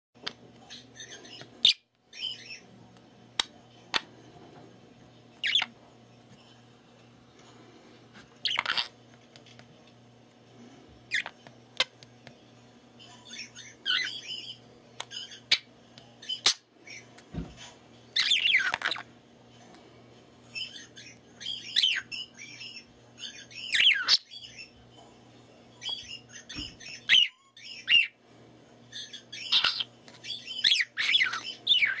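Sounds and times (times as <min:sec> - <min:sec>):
budgerigar chirping and squawking: 0:05.4 - 0:05.7, 0:08.4 - 0:08.9, 0:18.2 - 0:19.0, 0:23.6 - 0:24.3, 0:26.5 - 0:28.2, 0:29.0 - 0:32.0.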